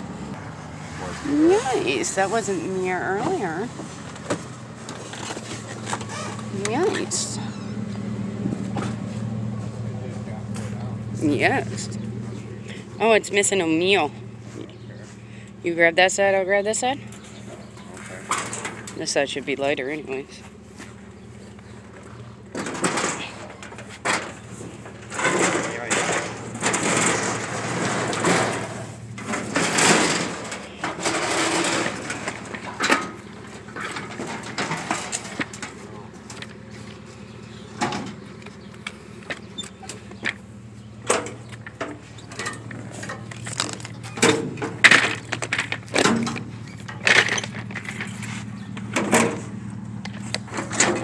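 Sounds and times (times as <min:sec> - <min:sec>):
grill rattling and scraping: 0:16.0 - 0:51.0
metal knocks and clanks: 0:16.7 - 0:19.7, 0:21.8 - 0:51.0.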